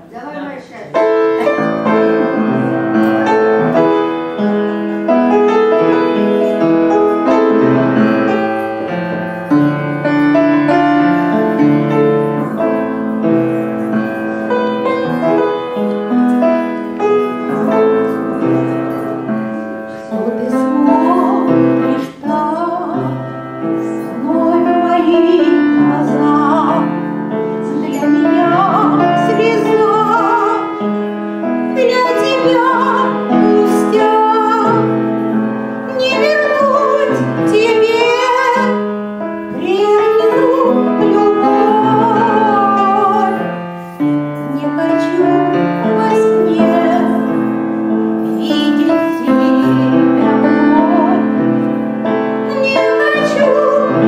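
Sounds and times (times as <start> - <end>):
piano accompaniment: 0.0 - 54.0
woman singing into microphone: 20.1 - 31.0, 31.7 - 35.0, 35.9 - 38.9, 39.5 - 43.5, 44.4 - 47.5, 48.3 - 51.5, 52.5 - 54.0.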